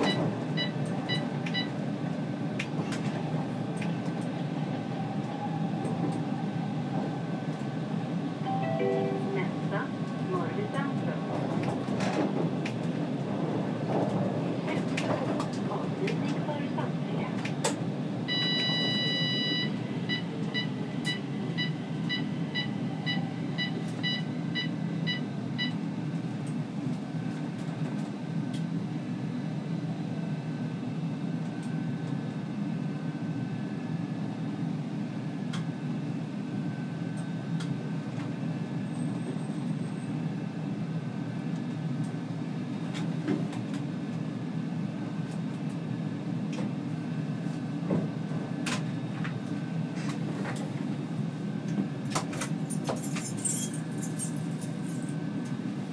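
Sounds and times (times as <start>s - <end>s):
train equipment humming: 0.0s - 28.7s.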